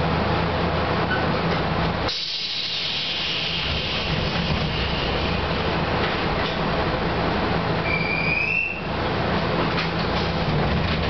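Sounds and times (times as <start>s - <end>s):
low hum in train car: 0.0s - 11.0s
train door air hiss: 2.0s - 6.0s.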